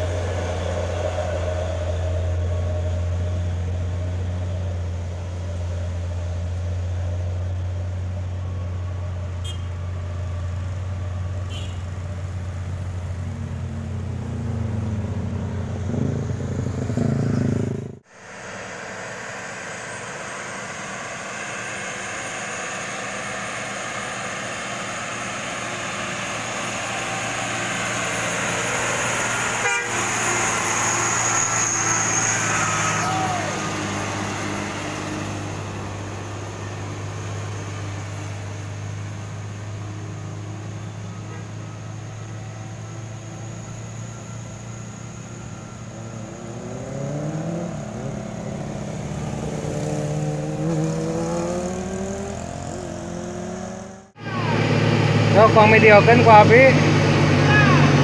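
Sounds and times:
heavy truck engines climbing: 0.0s - 58.0s
vehicle horn: 9.4s - 10.0s, 11.4s - 12.2s, 29.3s - 30.8s, 41.2s - 41.6s.

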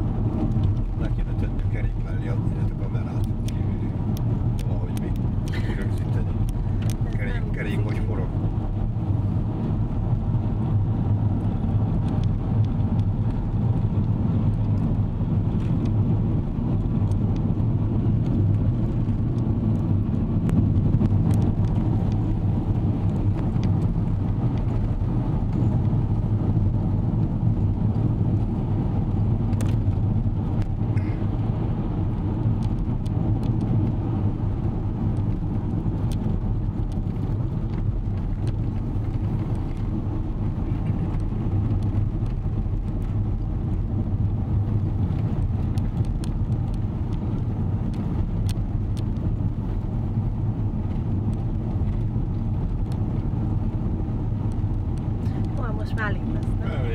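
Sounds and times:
car interior road rumble: 0.0s - 56.9s.

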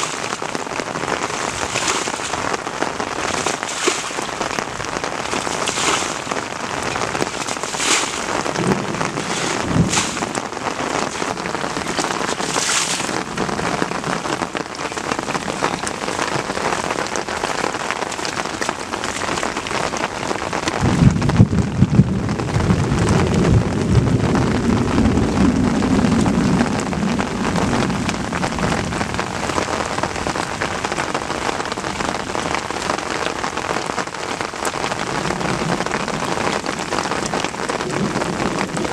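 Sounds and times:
water hissing over a field: 0.0s - 13.4s
short splashes: 1.2s - 14.0s
low rumble: 20.8s - 29.2s.

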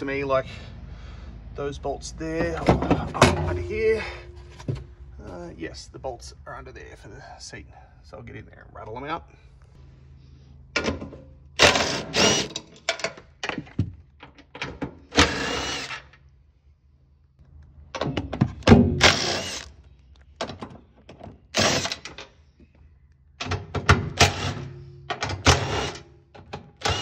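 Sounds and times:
clunks of tool and bolts: 10.8s - 15.0s, 23.4s - 27.0s.

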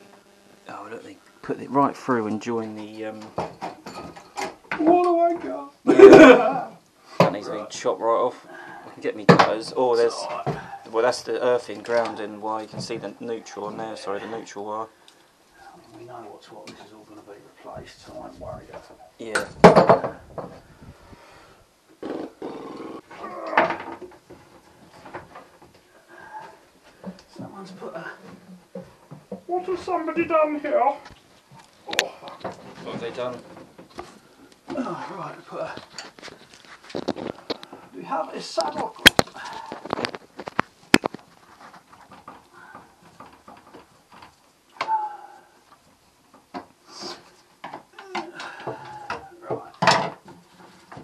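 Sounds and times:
man groaning with effort: 34.7s - 35.2s, 44.8s - 45.6s, 47.9s - 49.5s
hands clicking among wires: 38.6s - 44.9s.

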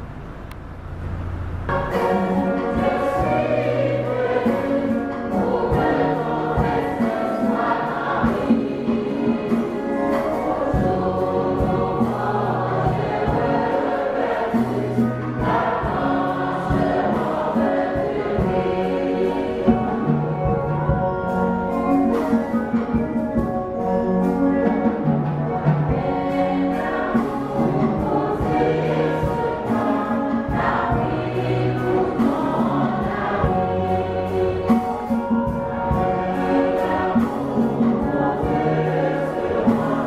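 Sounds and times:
choir singing with accompaniment: 1.7s - 40.0s.

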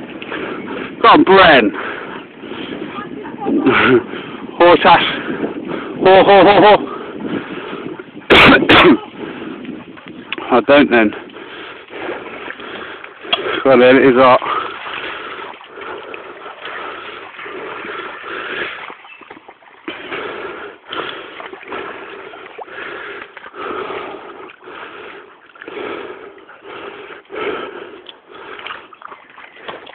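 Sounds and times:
dogs panting hard: 19.9s - 28.9s.

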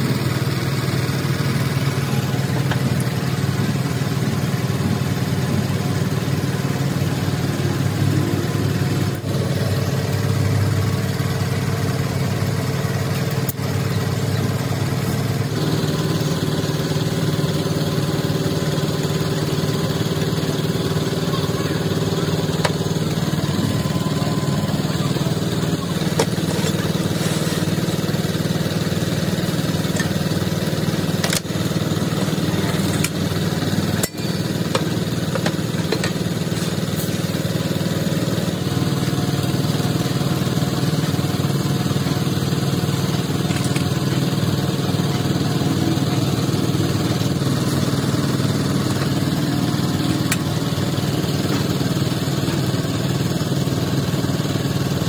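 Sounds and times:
small engine droning: 0.0s - 55.0s.

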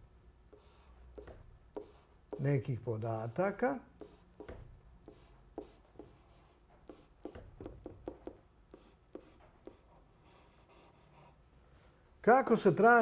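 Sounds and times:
marker pen writing on paper: 0.5s - 2.6s, 3.2s - 11.4s.

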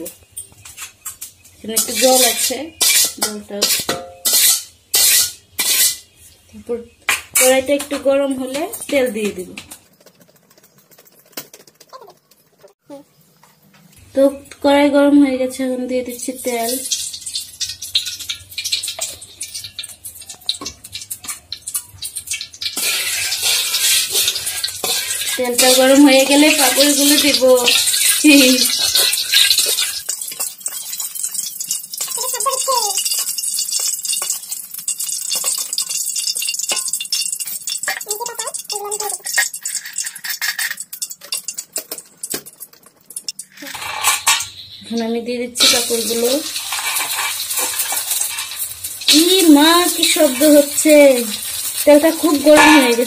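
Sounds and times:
oil sizzling in a pan: 0.0s - 9.6s, 14.0s - 53.0s
hot oil crackling and spitting: 0.0s - 14.7s, 16.0s - 53.0s.

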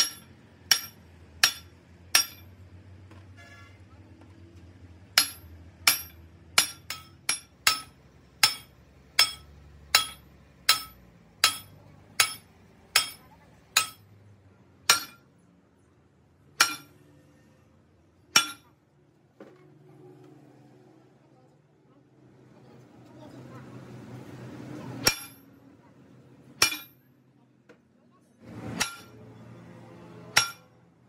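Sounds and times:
hammer striking steel: 0.0s - 2.6s, 5.2s - 14.1s, 14.8s - 15.3s, 16.5s - 17.1s, 18.3s - 18.8s, 25.0s - 25.5s, 26.6s - 27.1s, 28.5s - 29.3s, 30.3s - 30.8s.

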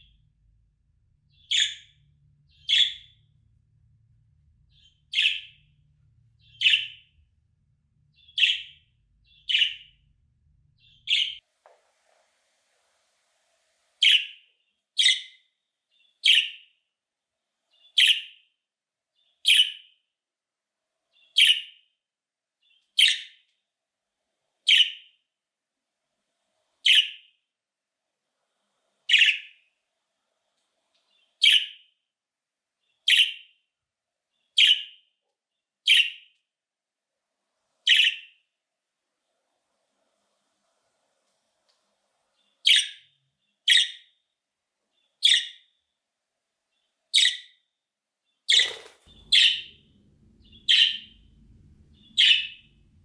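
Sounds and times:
budgerigar chirping: 1.3s - 3.2s, 4.7s - 5.7s, 6.4s - 7.1s, 8.2s - 10.0s, 10.8s - 11.4s, 14.0s - 14.4s, 15.0s - 15.4s, 16.2s - 16.7s, 17.9s - 18.4s, 19.4s - 19.9s, 21.3s - 21.8s, 23.0s - 23.4s, 24.7s - 25.1s, 26.8s - 27.2s, 29.1s - 29.6s, 31.4s - 31.8s, 33.0s - 33.5s, 34.6s - 35.0s, 35.8s - 36.2s, 37.9s - 38.4s, 42.6s - 44.1s, 45.2s - 45.7s, 47.1s - 47.6s, 48.5s - 52.9s.

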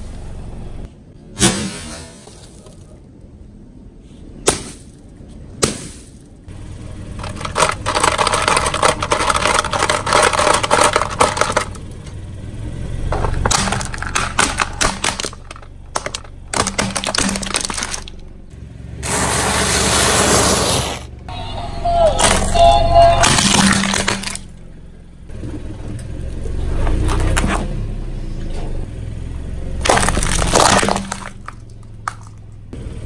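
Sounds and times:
sharp cracks under car tyre: 7.1s - 12.2s, 13.1s - 18.2s, 29.8s - 32.7s
plastic toy crackling and snapping: 7.2s - 11.9s, 13.3s - 18.2s.

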